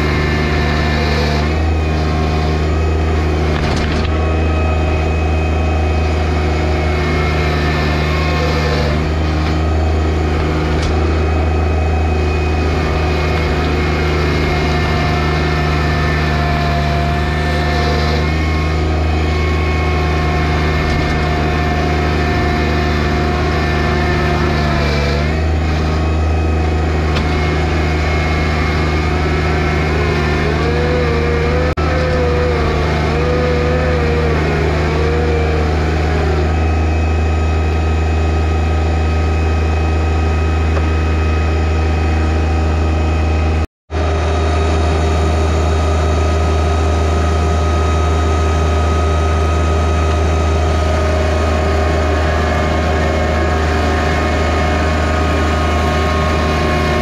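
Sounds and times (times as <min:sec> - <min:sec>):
tractor diesel engine running: 0:00.0 - 0:57.0
wavering high tone: 0:04.2 - 0:24.6, 0:25.2 - 0:38.2.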